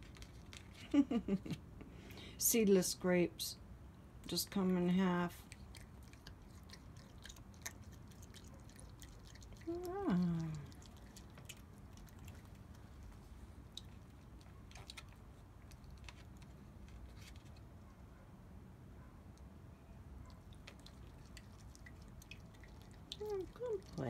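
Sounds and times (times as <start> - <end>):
raccoon chewing wetly: 0.0 - 1.3, 4.9 - 17.8, 20.2 - 24.0.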